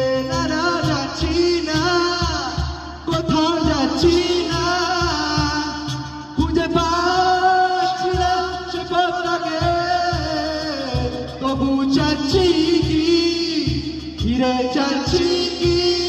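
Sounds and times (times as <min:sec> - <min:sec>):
acoustic guitars: 0:00.0 - 0:16.0
cajon beating: 0:00.0 - 0:16.0
man singing: 0:00.0 - 0:16.0.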